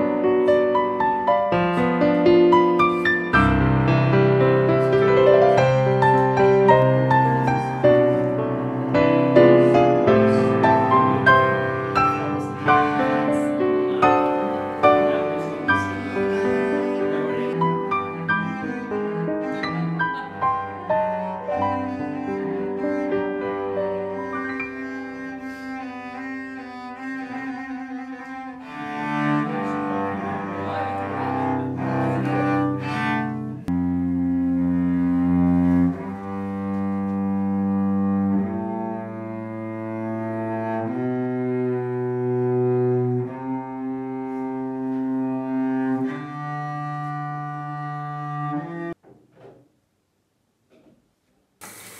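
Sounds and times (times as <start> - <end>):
bowed cello: 0.0 - 49.0.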